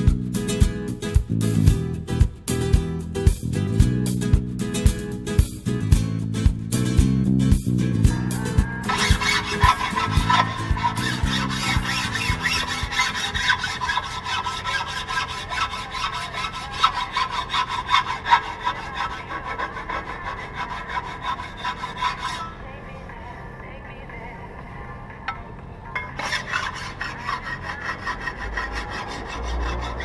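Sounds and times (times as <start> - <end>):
steel blade sharpening strokes: 8.9 - 19.1, 26.2 - 30.0.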